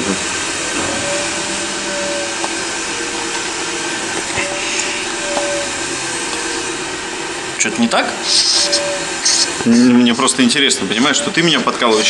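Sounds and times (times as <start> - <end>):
machine whirring: 0.0 - 12.0.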